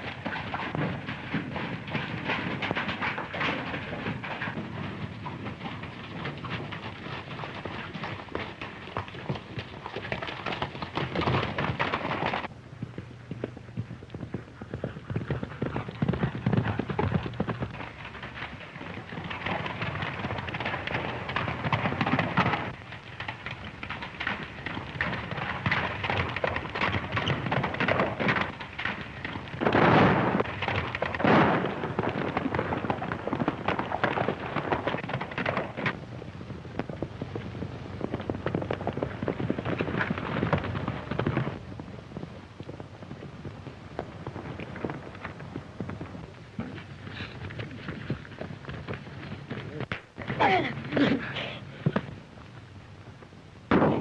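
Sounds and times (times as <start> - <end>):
galloping horse hoofbeats: 0.0 - 54.0
loud bangs: 29.6 - 33.2.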